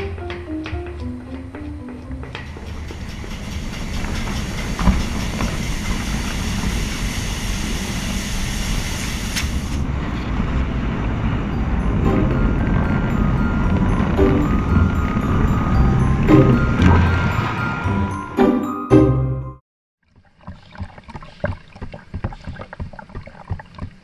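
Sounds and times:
music: 0:00.0 - 0:02.6, 0:11.5 - 0:19.6
machine rumble and hiss: 0:02.1 - 0:09.8.

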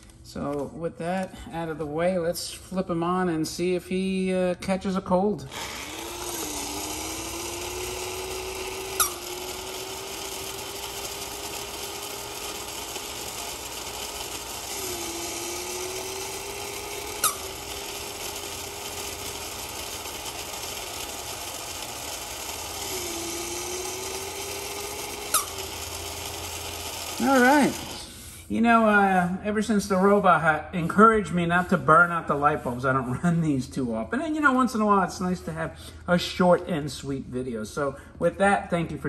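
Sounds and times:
toy electric motor whining: 0:05.4 - 0:28.5.

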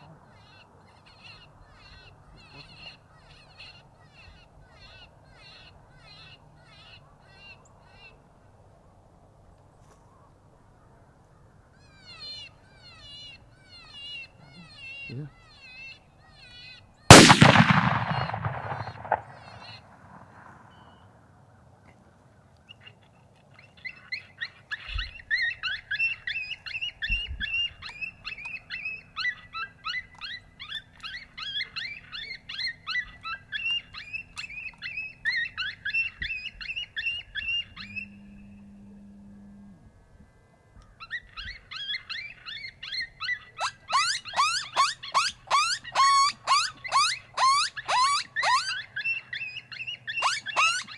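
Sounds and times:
rapid high yelping calls: 0:12.0 - 0:20.0, 0:41.1 - 0:50.9
gunshot: 0:17.1 - 0:20.8
sharp falling squeals: 0:50.2 - 0:50.9.

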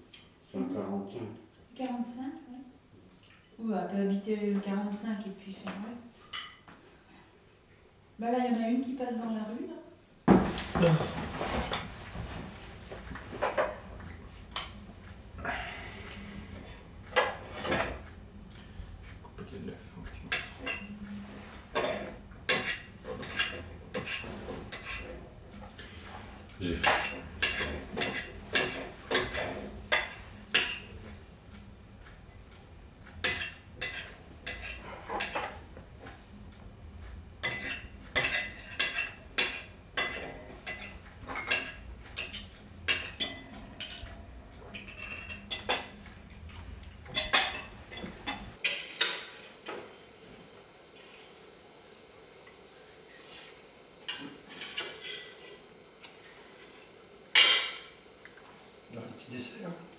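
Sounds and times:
cutlery clinking on plates: 0:06.3 - 0:06.7, 0:20.1 - 0:21.0, 0:21.7 - 0:25.2, 0:26.8 - 0:31.0, 0:33.2 - 0:35.7, 0:37.4 - 0:46.3, 0:46.9 - 0:49.4, 0:54.1 - 0:55.6, 0:57.4 - 0:58.0.

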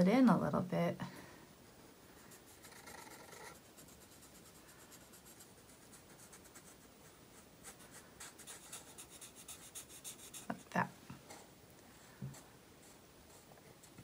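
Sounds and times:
markers scratching on paper: 0:02.4 - 0:10.7, 0:12.3 - 0:14.0.

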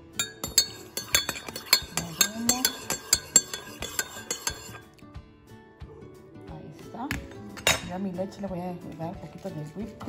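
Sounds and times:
spoon clinking in ceramic mug: 0:00.1 - 0:05.0, 0:07.6 - 0:07.9.

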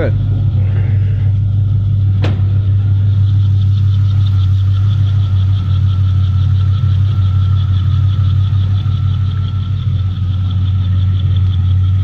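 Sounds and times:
car engine idling: 0:00.0 - 0:12.0
light rapid ticking: 0:03.1 - 0:12.0.

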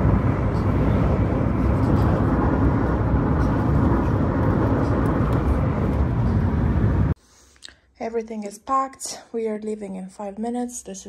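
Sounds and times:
loud low steady noise: 0:00.0 - 0:07.2.

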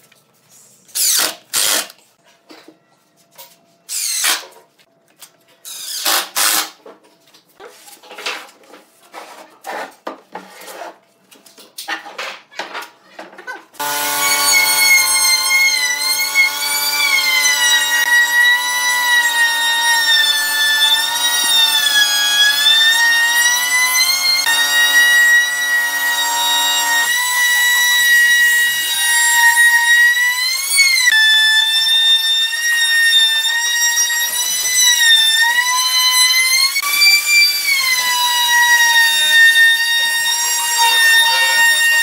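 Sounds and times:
impact driver driving screws: 0:01.0 - 0:02.0
electric router whining: 0:13.8 - 0:42.0.

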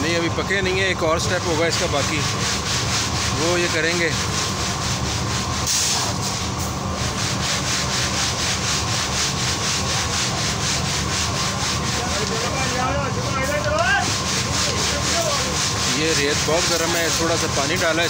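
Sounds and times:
sand hissing pouring from a sieve: 0:01.9 - 0:12.0, 0:14.0 - 0:18.0
pulsing rasping noise: 0:06.9 - 0:18.0.

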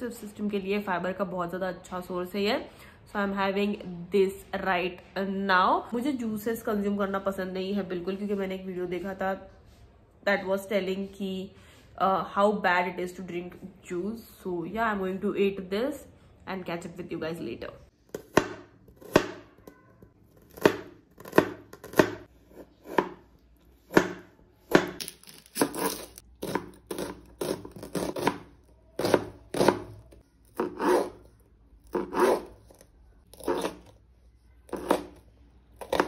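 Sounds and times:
knife chopping on plastic board: 0:18.1 - 0:19.5, 0:20.4 - 0:23.2, 0:23.8 - 0:25.0, 0:25.6 - 0:31.2, 0:34.7 - 0:35.2.

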